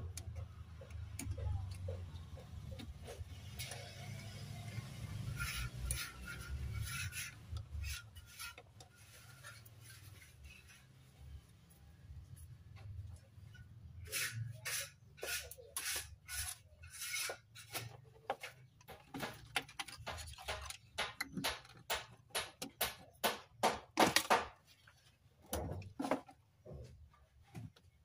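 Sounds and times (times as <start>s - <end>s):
hands handling circuit boards: 15.2s - 28.0s.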